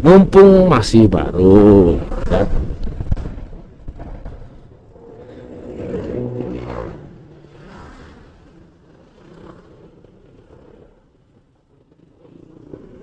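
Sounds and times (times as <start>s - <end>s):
scooter engine and road noise: 0.0s - 13.0s
passing engine: 4.6s - 13.0s.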